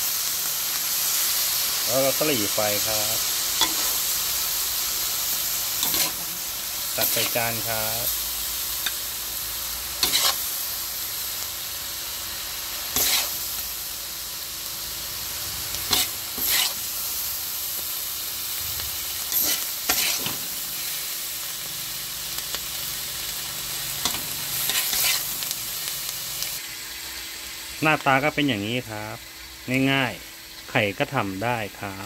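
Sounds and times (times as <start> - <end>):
food sizzling in a wok: 0.0 - 32.0
metal spatula scraping a wok: 2.6 - 9.1, 9.7 - 10.7, 12.7 - 13.6, 15.8 - 17.2, 18.6 - 21.2, 23.7 - 25.6.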